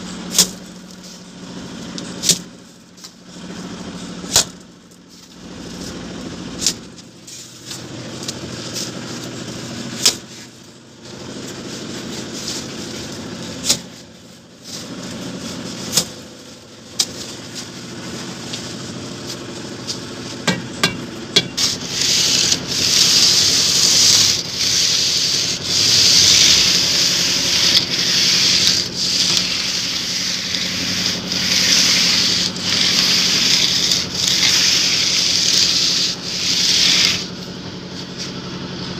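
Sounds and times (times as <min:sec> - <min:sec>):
straightedge scraping plaster: 0:20.5 - 0:37.5.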